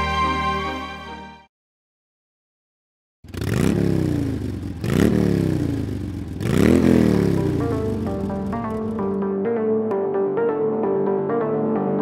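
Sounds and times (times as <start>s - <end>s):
electronic music: 7.6s - 12.0s.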